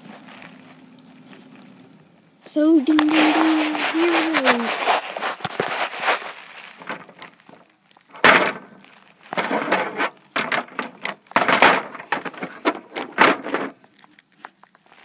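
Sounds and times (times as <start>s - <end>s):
plastic figures knocking and scraping: 2.8s - 14.6s.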